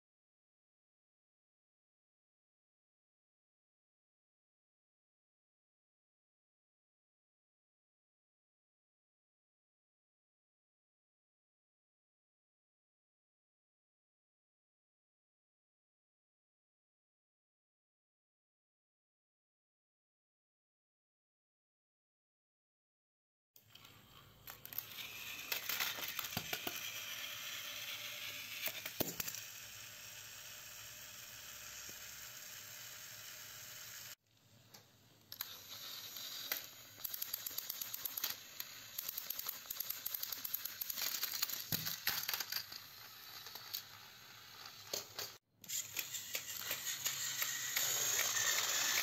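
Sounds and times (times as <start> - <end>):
plastic toy trains clicking and rattling: 23.6 - 34.2, 35.3 - 49.0.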